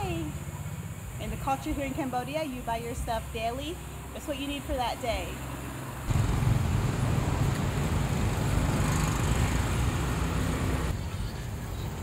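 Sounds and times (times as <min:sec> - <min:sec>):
road noise: 0:00.0 - 0:12.0
motorbike engines running: 0:03.6 - 0:11.8.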